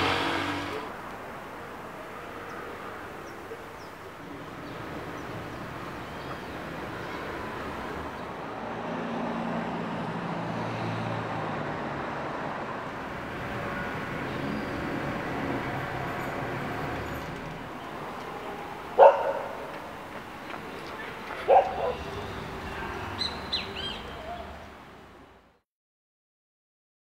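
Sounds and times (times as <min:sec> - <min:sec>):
vehicle engine running: 0:00.0 - 0:00.9
distant traffic hum: 0:00.0 - 0:25.6.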